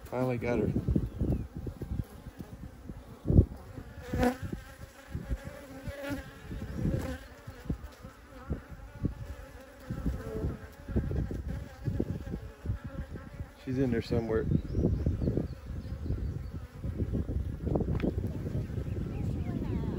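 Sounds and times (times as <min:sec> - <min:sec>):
bees buzzing: 0:00.0 - 0:19.9
low microphone rumbles: 0:06.2 - 0:19.9.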